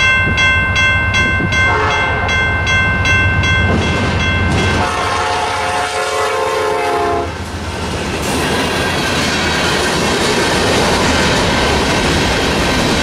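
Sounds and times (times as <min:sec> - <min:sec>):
train wheels rumbling on rails: 0:00.0 - 0:13.0
locomotive air horn: 0:01.7 - 0:02.3, 0:04.8 - 0:07.4.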